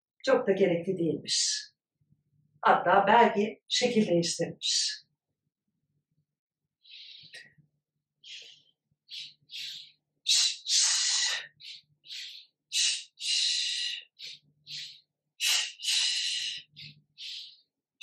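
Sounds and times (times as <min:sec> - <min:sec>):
woman breathing rhythmically: 0:06.8 - 0:07.6, 0:08.2 - 0:17.8.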